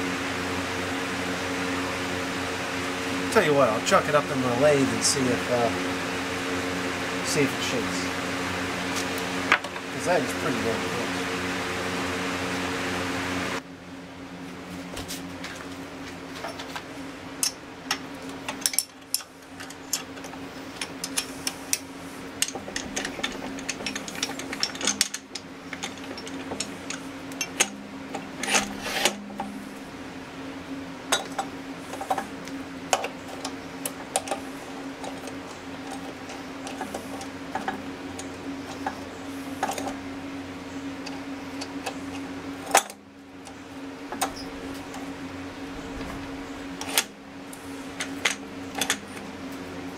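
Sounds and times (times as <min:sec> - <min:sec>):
steady low hum: 0:00.0 - 0:49.9
metal clinks and knocks: 0:22.4 - 0:29.6.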